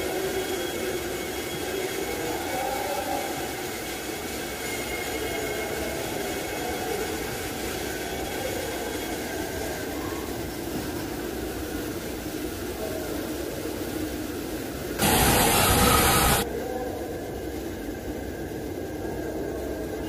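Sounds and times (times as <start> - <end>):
mechanical whirring and hiss: 15.0 - 16.4.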